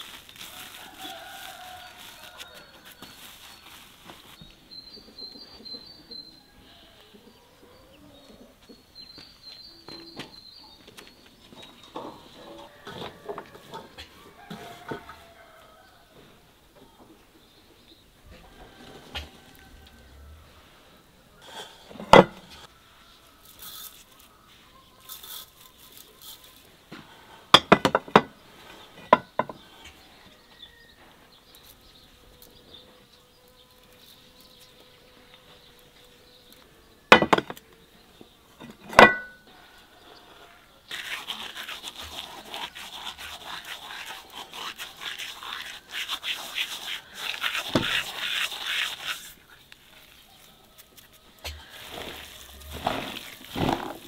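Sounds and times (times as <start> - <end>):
crackly rustling: 0.0 - 4.6, 40.9 - 54.0.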